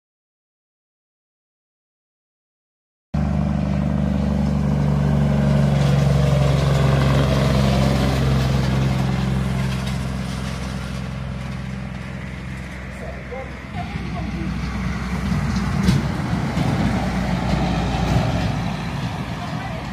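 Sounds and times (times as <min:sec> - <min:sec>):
truck diesel engine passing: 0:03.2 - 0:19.9.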